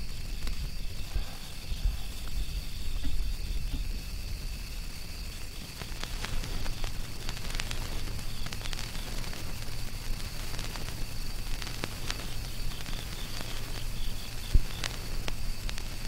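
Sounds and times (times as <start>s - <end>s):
crackling hiss: 0.0s - 16.0s
low steady hum: 0.0s - 16.0s
sharp clicks: 5.4s - 16.0s.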